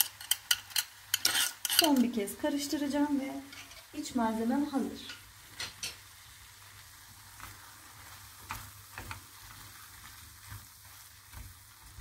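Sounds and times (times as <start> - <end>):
spatula stirring: 0.0 - 2.2, 3.4 - 3.9, 5.0 - 12.0
meat sizzling in a frying pan: 0.0 - 12.0
spatula taps: 8.4 - 9.7.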